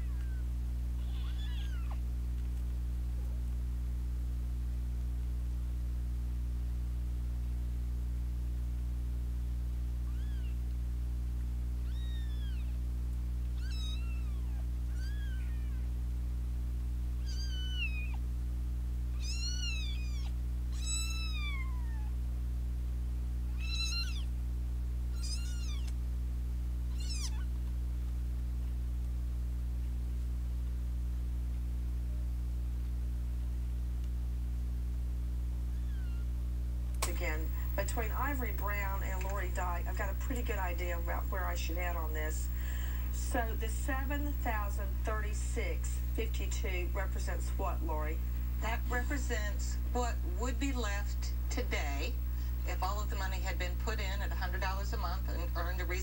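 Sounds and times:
kittens mewing: 0.0 - 2.0, 10.1 - 10.6, 11.8 - 12.8, 13.6 - 15.9, 17.2 - 18.2, 19.1 - 22.2, 23.5 - 24.4, 25.1 - 26.0, 26.9 - 27.6, 35.7 - 36.3
steady low hum: 0.0 - 56.0.

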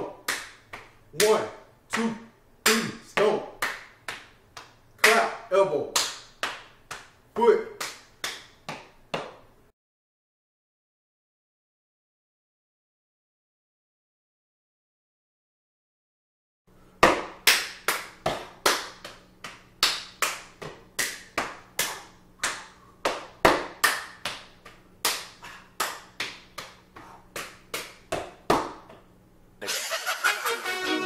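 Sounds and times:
hand claps and body slaps: 0.0 - 5.3, 5.9 - 9.5, 17.0 - 29.1
music: 29.6 - 31.0.

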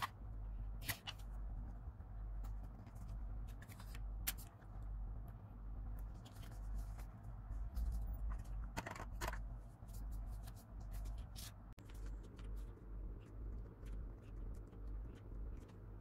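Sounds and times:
low steady hum: 0.0 - 16.0
paper rustling and crinkling: 2.4 - 4.7, 6.0 - 16.0.

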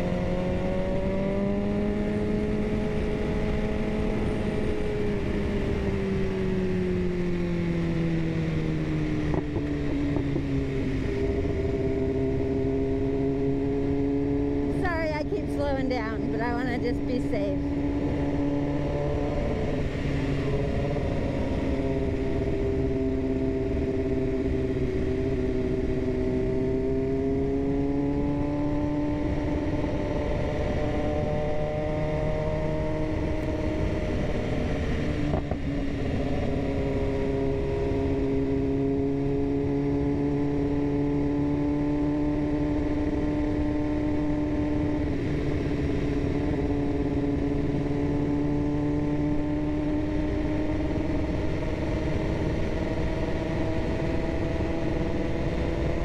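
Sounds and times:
motorcycle engine revving: 0.0 - 56.0.

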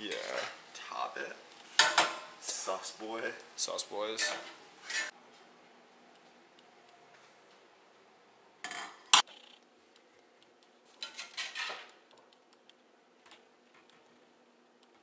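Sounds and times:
spoon scraping a saucepan: 4.2 - 5.1
spatula scraping a skillet: 4.8 - 5.1, 11.0 - 11.9.

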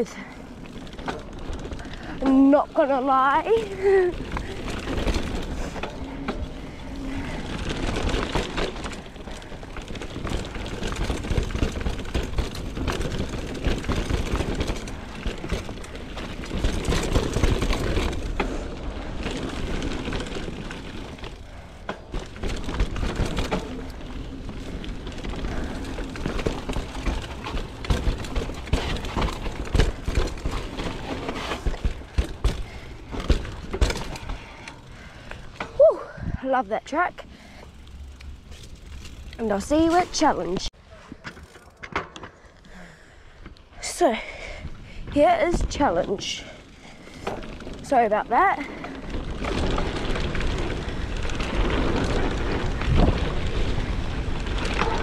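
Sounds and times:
bike knocks and rattles: 0.0 - 36.2, 36.9 - 43.6, 44.3 - 55.0
bike tyres on dirt trail: 0.0 - 55.0.

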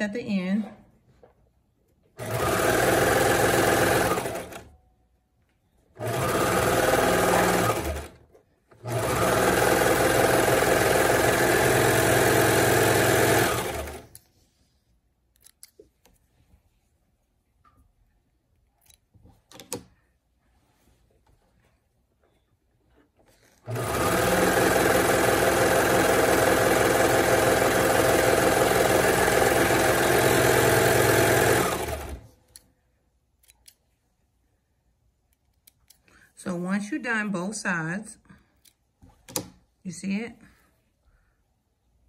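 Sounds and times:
overlock sewing machine stitching: 2.2 - 4.7, 5.9 - 14.2, 23.5 - 32.4.

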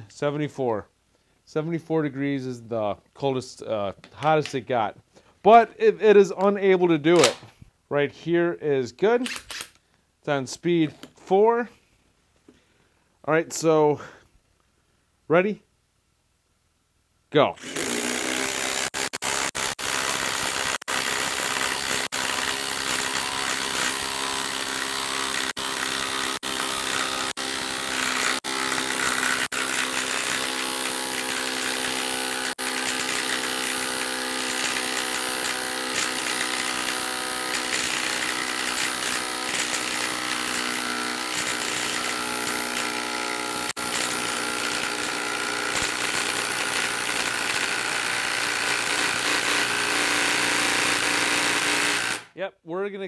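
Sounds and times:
impact driver hammering: 17.6 - 52.3.

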